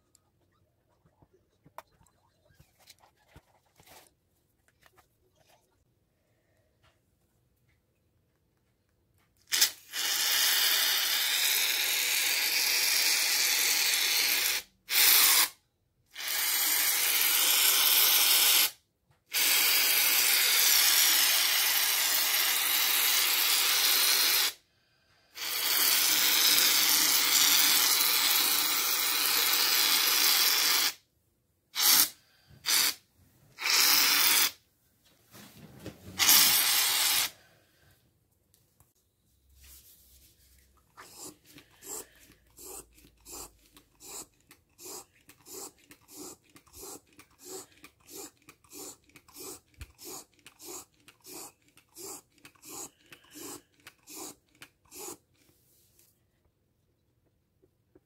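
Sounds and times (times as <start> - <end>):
aerosol foam can hissing: 9.5 - 15.6, 16.2 - 24.6, 25.4 - 31.0, 31.8 - 33.0, 33.6 - 34.6, 36.2 - 37.4, 41.0 - 55.2.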